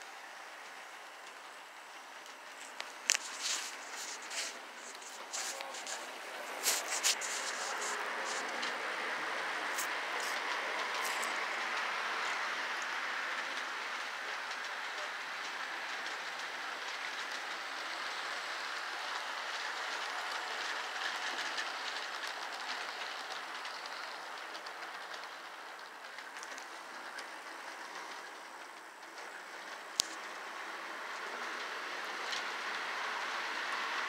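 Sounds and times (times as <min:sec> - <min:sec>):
model train rolling whir: 0:00.0 - 0:34.0
faint clicking: 0:00.6 - 0:06.0.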